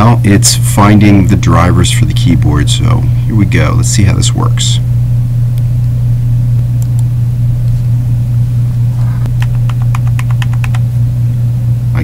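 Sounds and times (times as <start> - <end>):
steady low hum: 0.0 - 12.0
keyboard keys clicking: 9.3 - 10.8.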